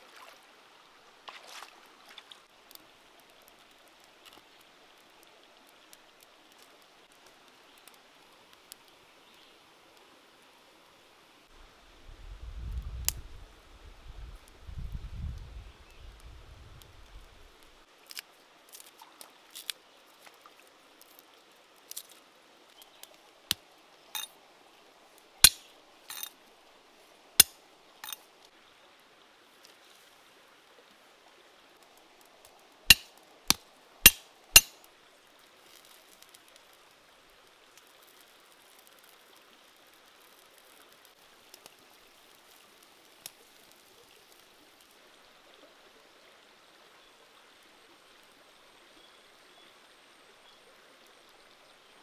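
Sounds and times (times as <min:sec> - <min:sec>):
faint steady hiss: 0:00.0 - 0:52.0
sharp pops and clinks: 0:25.4 - 0:26.3, 0:27.4 - 0:28.2, 0:32.9 - 0:34.9.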